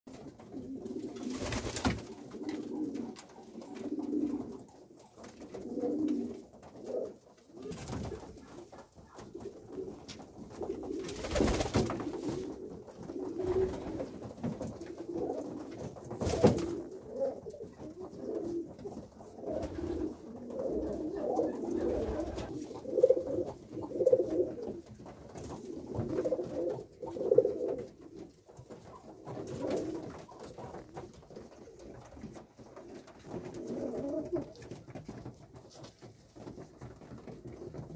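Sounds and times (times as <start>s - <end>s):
pigeons cooing: 0.4s - 8.4s, 9.1s - 14.2s, 14.9s - 24.9s, 25.6s - 28.0s, 32.9s - 34.7s.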